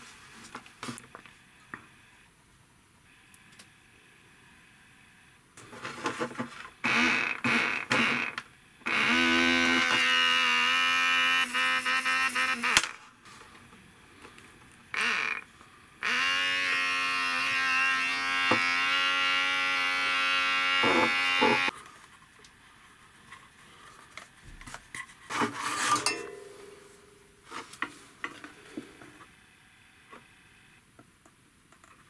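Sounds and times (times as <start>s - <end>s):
electric air pump buzzing: 5.6s - 13.5s, 14.9s - 21.8s.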